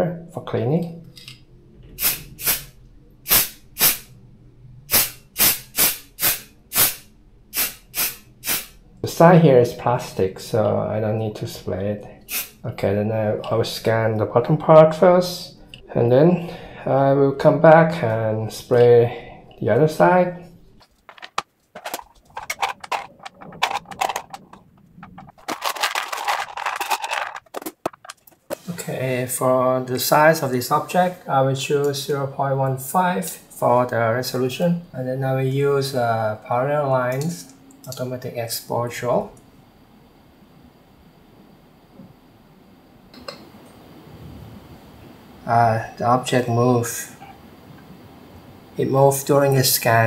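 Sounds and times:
aerosol spray hissing in puffs: 0:02.0 - 0:02.7, 0:03.3 - 0:04.1, 0:04.9 - 0:08.8, 0:12.3 - 0:12.6
objects clicking on plastic turntable: 0:20.8 - 0:28.6
rustling and scraping: 0:20.8 - 0:29.0.

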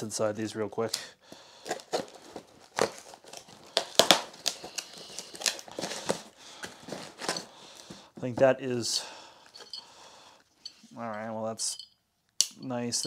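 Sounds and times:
cardboard and tape tearing: 0:01.6 - 0:07.5
blade slitting packing tape: 0:02.8 - 0:05.8.

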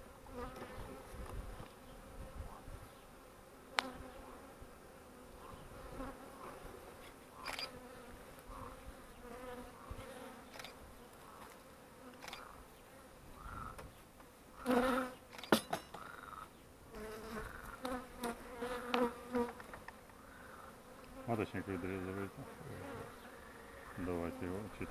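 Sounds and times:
honeybees buzzing: 0:00.0 - 0:24.9.

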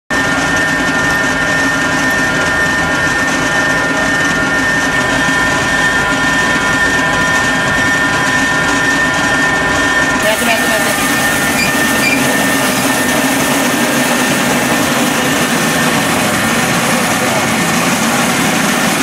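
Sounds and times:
high machine whine: 0:00.1 - 0:19.0
rice mill machine drone: 0:00.1 - 0:19.0.

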